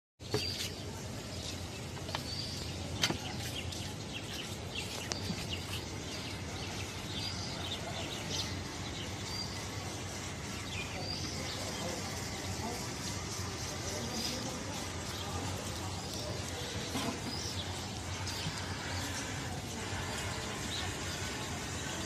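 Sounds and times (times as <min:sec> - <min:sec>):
small birds chirping: 0:00.2 - 0:22.0
street background noise: 0:00.2 - 0:22.0.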